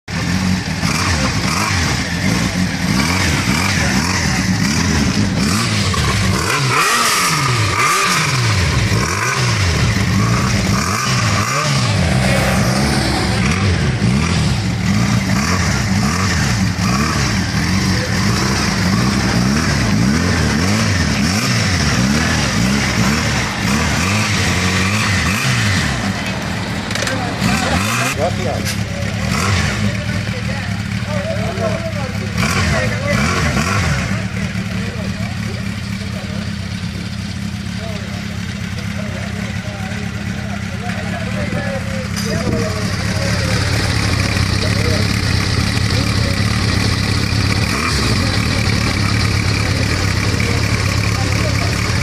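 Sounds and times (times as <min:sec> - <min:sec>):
motorcycle engine revving: 0:00.0 - 0:52.0
motorcycle passing by: 0:10.7 - 0:17.3.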